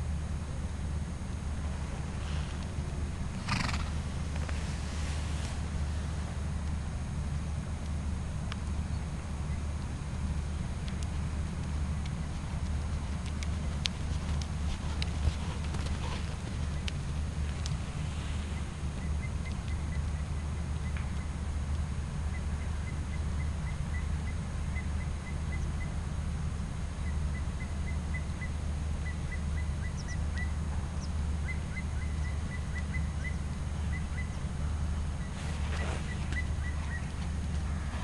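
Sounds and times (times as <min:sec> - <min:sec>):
steady low rumble: 0:00.0 - 0:38.0
small bird chirping: 0:35.2 - 0:37.3.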